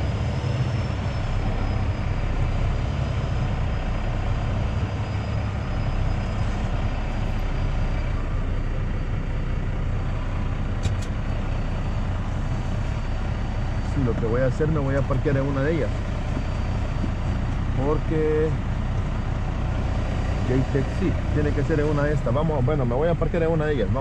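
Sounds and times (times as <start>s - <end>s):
diesel truck engine droning: 0.0s - 24.0s.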